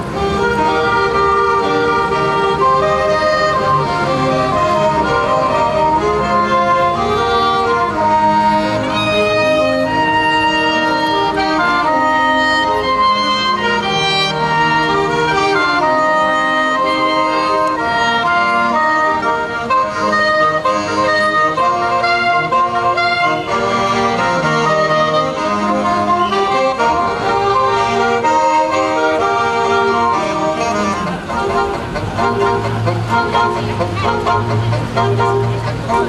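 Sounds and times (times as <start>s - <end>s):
saxophone ensemble playing: 0.0s - 36.0s.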